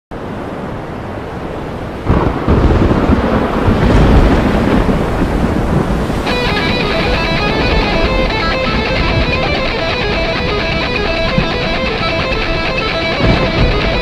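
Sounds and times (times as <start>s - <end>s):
storm noise rushing: 0.2s - 14.0s
thunderclap rumbling: 2.0s - 14.0s
electric guitar run: 6.3s - 14.0s.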